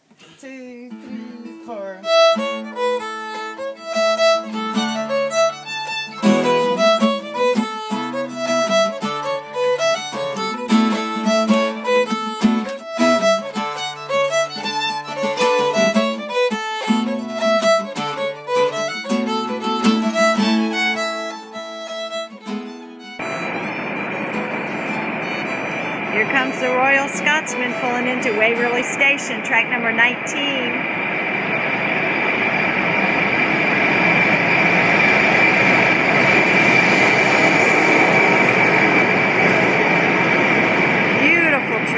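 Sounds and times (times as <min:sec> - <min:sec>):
strummed acoustic guitar: 0:00.1 - 0:30.7
bowed fiddle melody: 0:00.9 - 0:30.8.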